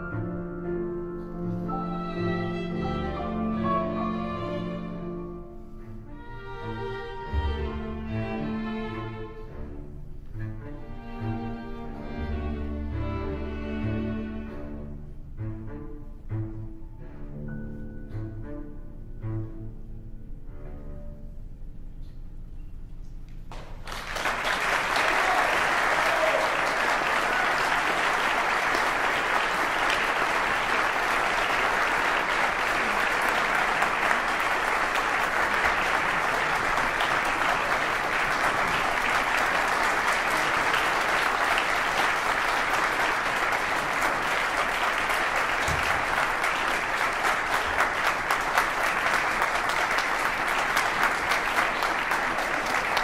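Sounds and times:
audience applauding: 23.5s - 53.0s.

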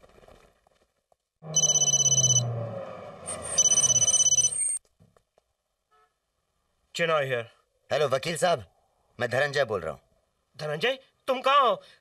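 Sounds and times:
street traffic rumble: 1.4s - 4.8s
telephone ringing: 1.5s - 2.5s, 3.4s - 4.8s.

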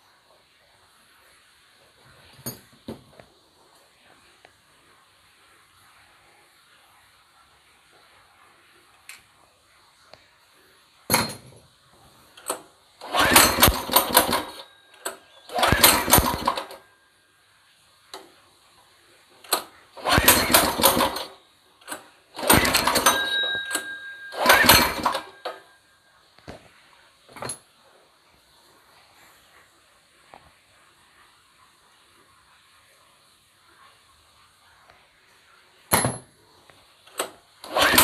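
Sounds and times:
go-kart engine starting and stopping: 12.4s - 16.8s, 19.4s - 25.6s, 37.1s - 38.0s.

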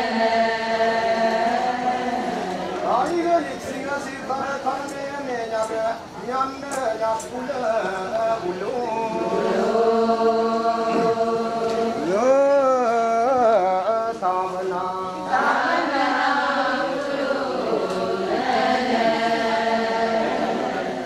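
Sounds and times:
group chanting: 0.0s - 3.3s, 9.0s - 13.4s, 15.2s - 21.0s.

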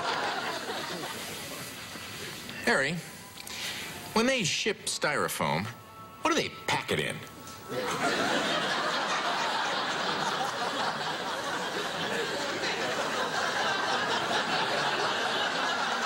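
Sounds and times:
audience laughing: 0.0s - 2.4s, 7.7s - 16.0s.

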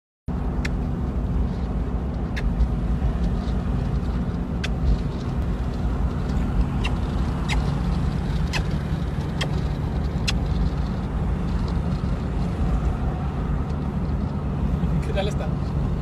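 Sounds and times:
car cabin engine and road rumble: 0.3s - 16.0s.

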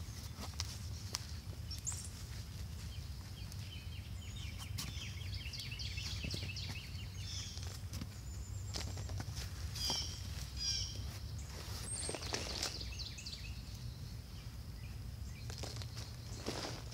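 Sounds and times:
bird chirping: 0.0s - 16.9s
hand raking through soil: 8.7s - 13.0s, 15.4s - 16.9s.

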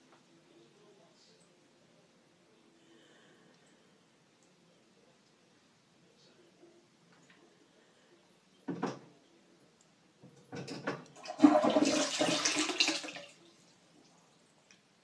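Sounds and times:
water rushing into toilet bowl: 11.2s - 13.4s.

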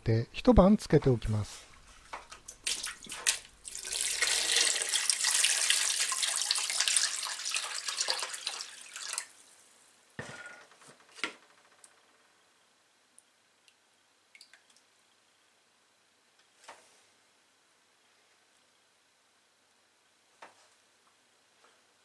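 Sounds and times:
water pouring into plastic bowl: 2.4s - 9.5s
faint water drips: 13.2s - 15.2s.

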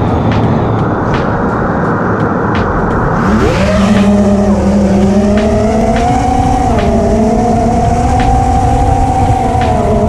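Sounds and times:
drone motors whining: 2.7s - 10.0s.

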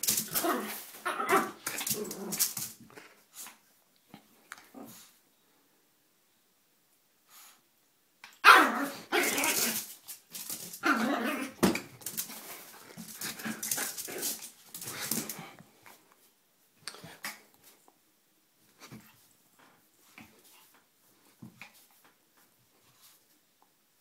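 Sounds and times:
small dog barking: 8.4s - 9.7s.

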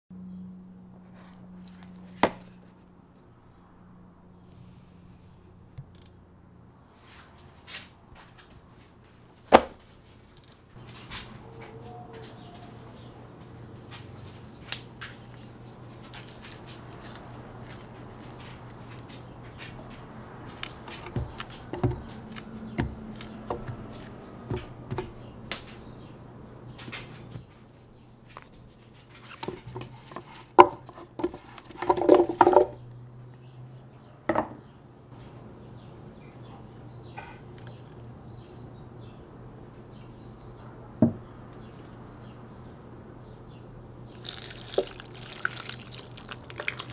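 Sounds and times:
fruit clattering in blender jar: 16.1s - 25.8s, 29.4s - 32.8s, 44.1s - 46.9s.

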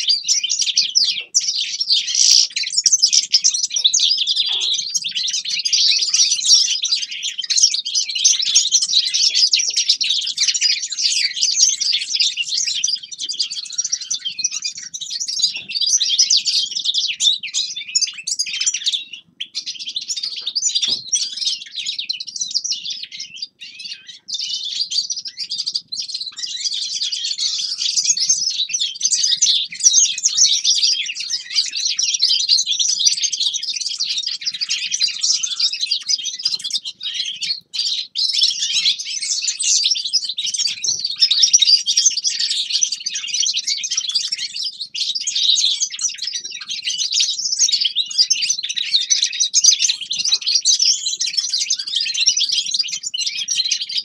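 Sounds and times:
finches twittering: 0.6s - 10.8s.

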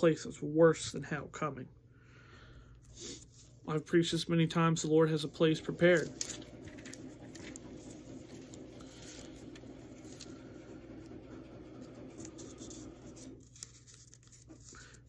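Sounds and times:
thin pages being turned: 5.2s - 15.0s.

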